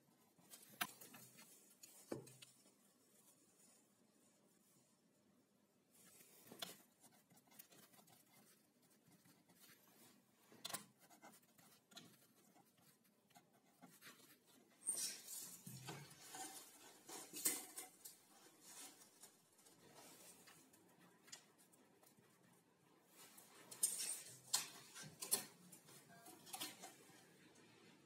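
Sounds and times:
pen scratching on paper: 0:10.6 - 0:14.5.

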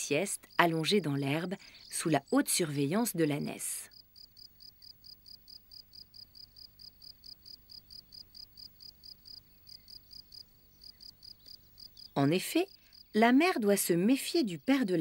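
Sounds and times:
cricket chirping: 0:03.9 - 0:13.3.

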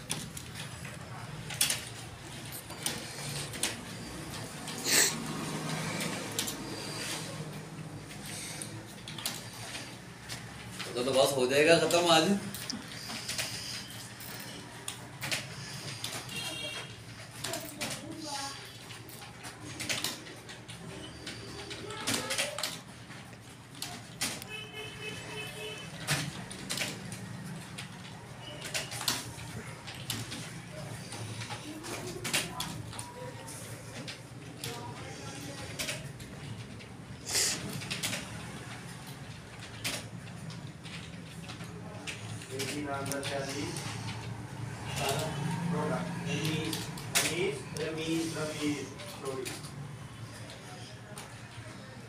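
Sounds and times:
keyboard keys clicking: 0:05.6 - 0:24.6.

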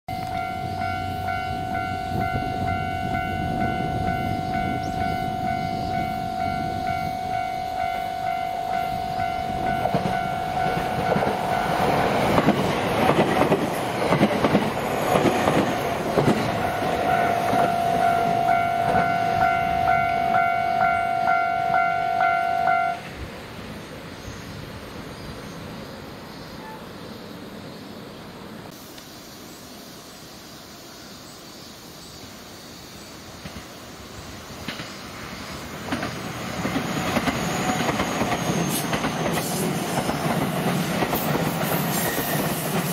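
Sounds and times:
level crossing warning bell: 0:00.1 - 0:12.2, 0:16.2 - 0:23.0
train wheels clattering over joints: 0:09.8 - 0:19.2, 0:35.8 - 0:42.9.

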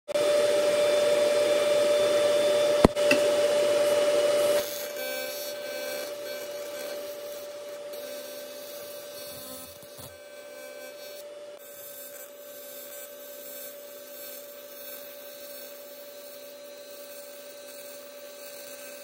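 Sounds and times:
loud whirring hum: 0:00.1 - 0:11.6
arc welder buzzing: 0:00.2 - 0:19.0.

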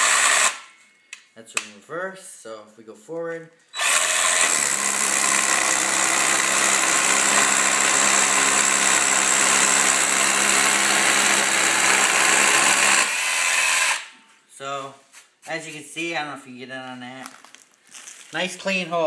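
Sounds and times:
rotary hammer drilling concrete: 0:00.0 - 0:00.7, 0:03.8 - 0:14.1.

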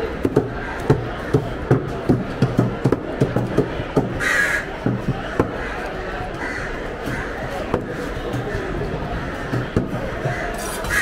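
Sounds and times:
crow cawing: 0:04.2 - 0:04.7, 0:05.5 - 0:07.4, 0:10.2 - 0:11.0.

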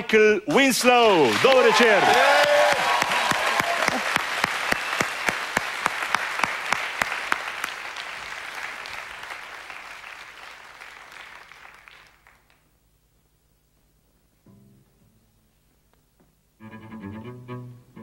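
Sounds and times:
audience applauding: 0:01.0 - 0:12.7.

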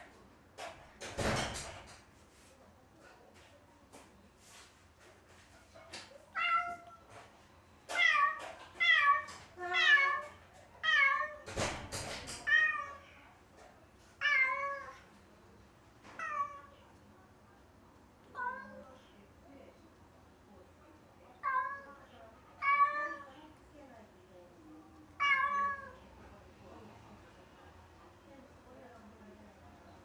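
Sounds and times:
cat meowing: 0:25.2 - 0:26.0.

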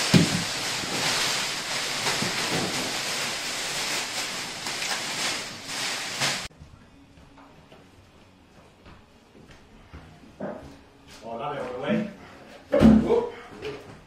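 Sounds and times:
plastic sheet crinkling: 0:00.0 - 0:06.5.

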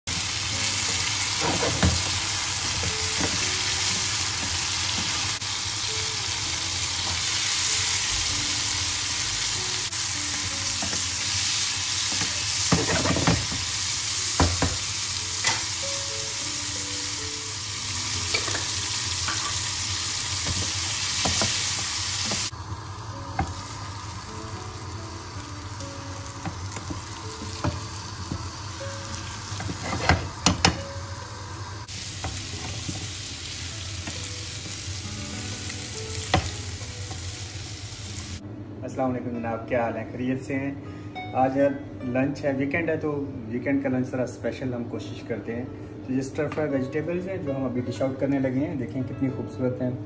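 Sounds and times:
vegetables sizzling in hot oil: 0:00.1 - 0:38.4
spatula scraping and knocking pan: 0:29.6 - 0:30.8.

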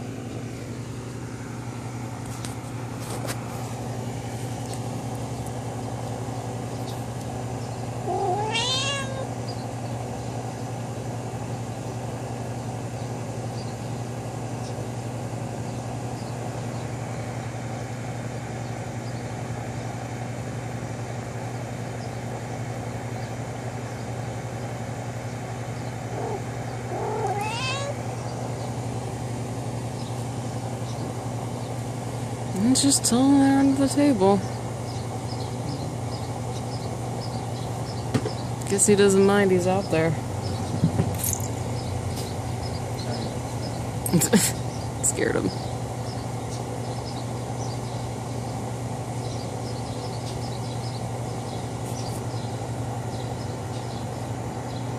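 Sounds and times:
steady low hum: 0:00.0 - 0:54.9
cat meowing: 0:08.0 - 0:09.3, 0:26.2 - 0:28.0.

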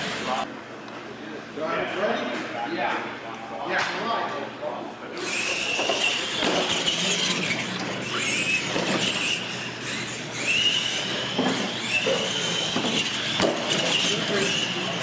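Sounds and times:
rc truck motor whine: 0:00.0 - 0:00.5, 0:05.2 - 0:15.0.

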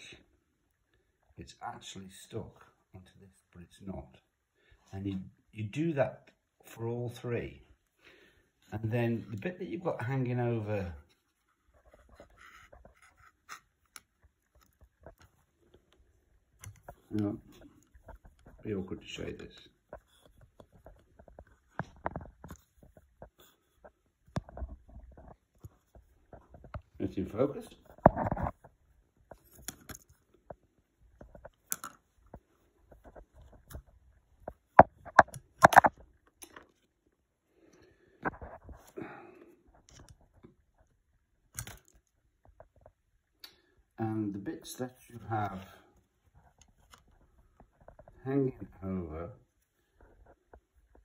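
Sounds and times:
soft rustling: 0:07.7 - 0:43.3, 0:44.7 - 0:51.0
small clicks and taps on plastic: 0:27.9 - 0:36.9
small handling clicks: 0:31.4 - 0:32.2, 0:41.5 - 0:42.1.

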